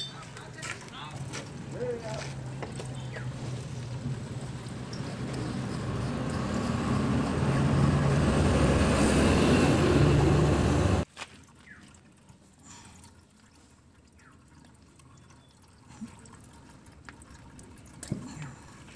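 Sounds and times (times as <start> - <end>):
vehicle engine humming: 0.0 - 11.1.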